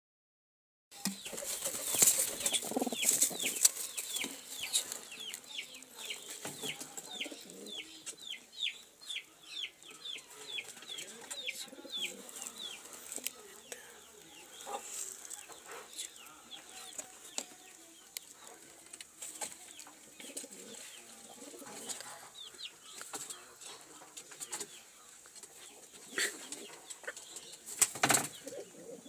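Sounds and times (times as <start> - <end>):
rustling in straw: 1.3 - 6.4, 14.2 - 16.0.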